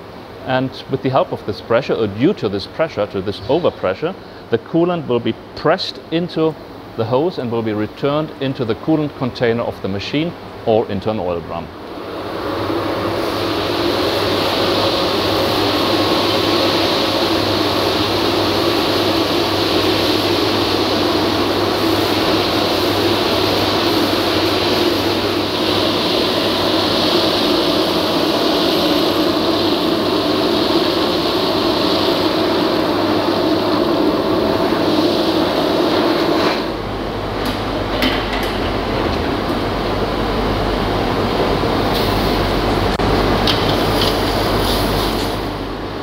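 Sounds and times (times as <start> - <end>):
vacuum cleaner sucking: 12.0 - 36.9.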